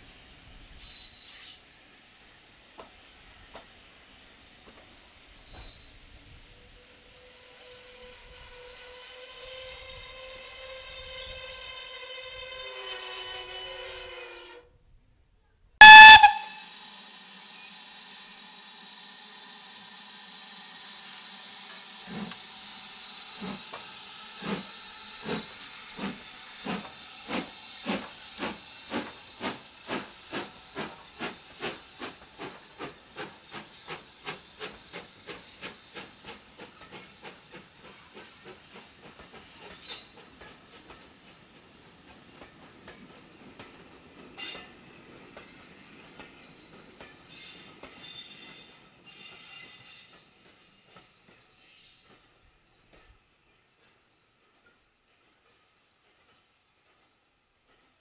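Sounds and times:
steam hiss: 0.0 - 14.1, 15.8 - 58.0
loud steam whistle blast: 15.8 - 21.6
steam locomotive exhaust beats: 15.8 - 53.2.

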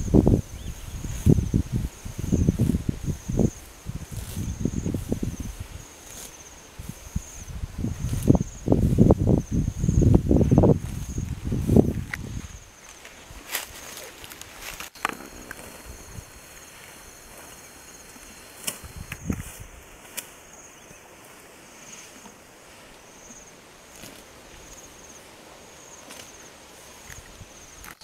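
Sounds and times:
vegetation snapping and rustling: 11.8 - 15.7, 18.6 - 20.4.

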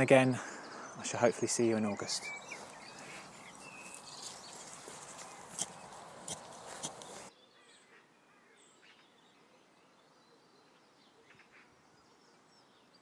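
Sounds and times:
faint bird chirps: 0.4 - 13.0
trowel scraping soil: 3.0 - 7.3.

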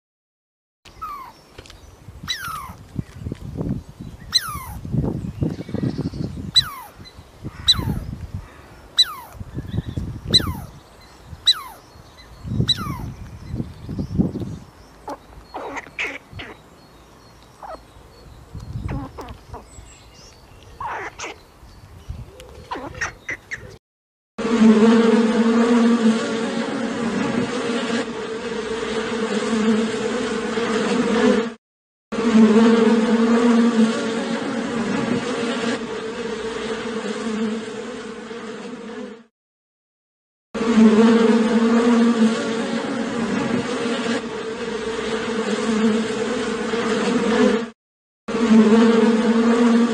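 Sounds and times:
honeybees buzzing: 0.9 - 21.1, 24.4 - 31.6, 32.2 - 39.2, 40.6 - 49.9.

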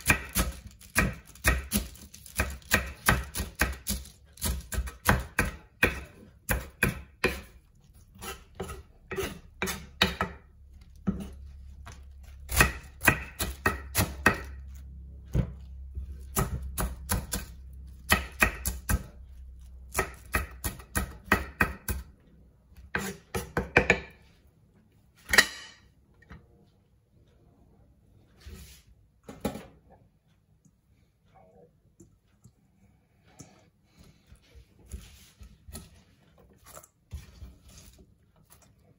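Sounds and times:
knife chopping lettuce on board: 0.0 - 7.6, 8.2 - 22.1, 22.9 - 24.2.

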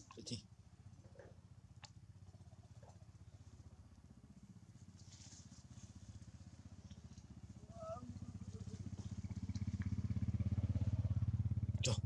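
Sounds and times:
small engine running: 3.3 - 12.0.

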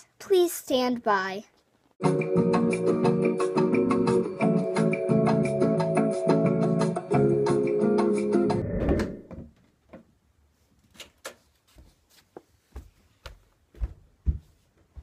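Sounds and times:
barefoot footsteps on wooden floor: 11.6 - 15.0.

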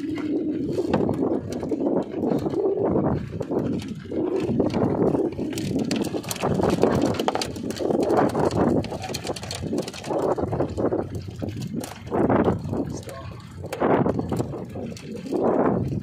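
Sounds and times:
wind buffeting microphone: 0.0 - 16.0
handling clicks and knocks: 3.5 - 15.3.

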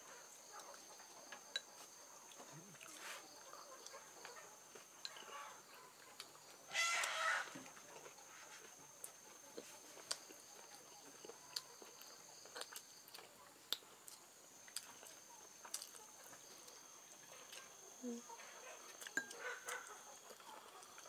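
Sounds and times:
person chewing: 9.0 - 16.4, 18.9 - 21.0.

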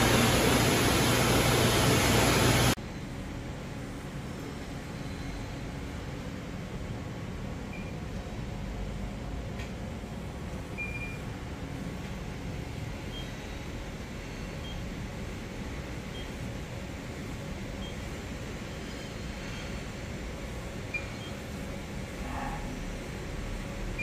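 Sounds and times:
machine hum: 0.0 - 24.0
faint high beeps: 7.7 - 8.0.

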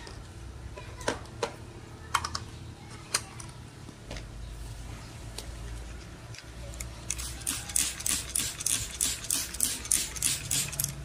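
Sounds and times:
spray bottle spritzes: 7.1 - 11.0.

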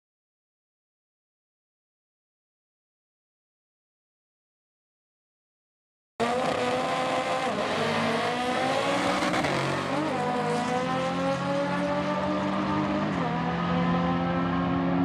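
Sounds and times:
drag car engine accelerating: 6.2 - 15.0.

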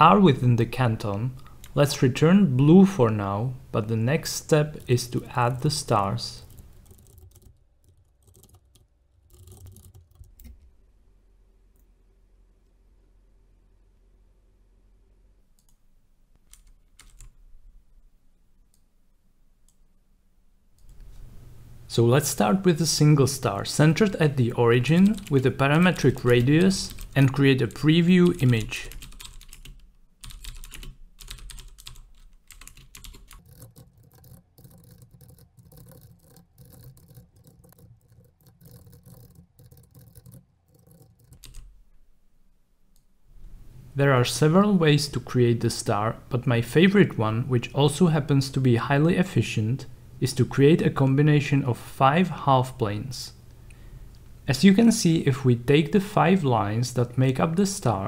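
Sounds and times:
low steady hum: 0.0 - 58.0
computer keyboard typing: 6.4 - 10.6, 16.5 - 17.3, 24.1 - 41.7
mouse and keyboard clicks: 32.6 - 41.7.

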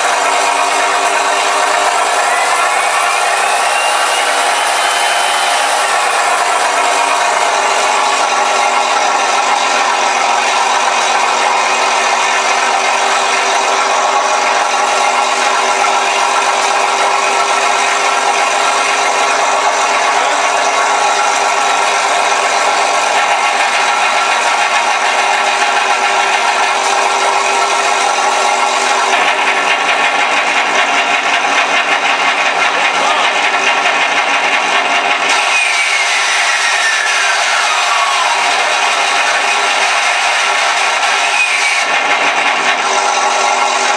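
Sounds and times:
falling whine: 0.0 - 30.8, 35.2 - 43.9
simulated piston engine through speakers: 0.0 - 43.9.

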